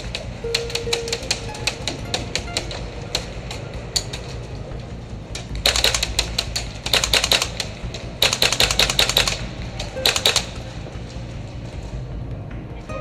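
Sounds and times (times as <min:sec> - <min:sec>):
airsoft gun full-auto bursts: 0:05.6 - 0:10.6.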